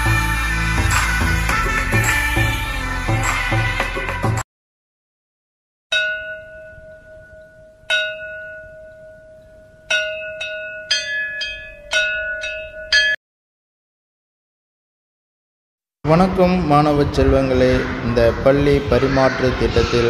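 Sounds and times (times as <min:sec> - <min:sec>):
metal bell ringing: 0:05.9 - 0:13.2.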